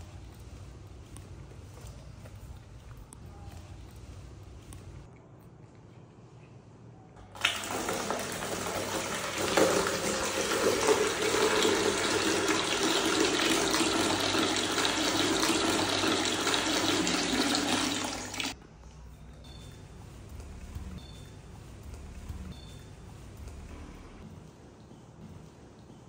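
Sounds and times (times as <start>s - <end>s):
tap water pouring into plastic basin: 7.4s - 18.6s.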